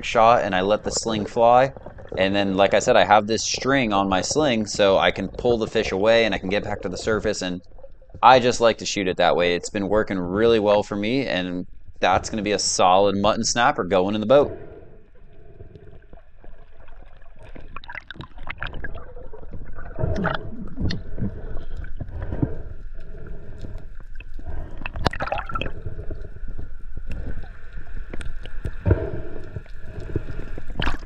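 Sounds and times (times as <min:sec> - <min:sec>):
water gurgling and sloshing: 0:00.0 - 0:31.0
bubbly pops: 0:16.4 - 0:22.5, 0:24.5 - 0:26.2, 0:29.9 - 0:31.0.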